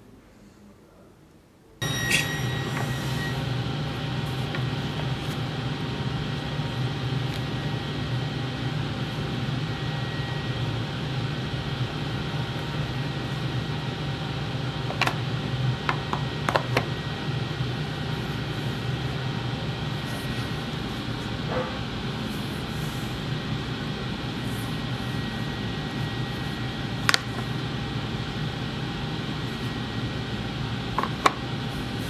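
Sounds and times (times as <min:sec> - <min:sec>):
mechanical hum and hiss: 0:00.0 - 0:32.0.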